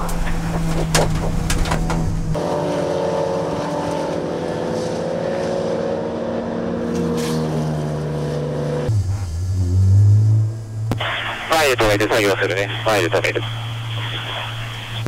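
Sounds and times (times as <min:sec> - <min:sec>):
race cars passing at speed: 0:00.0 - 0:11.0
onboard race car engine: 0:00.0 - 0:11.2.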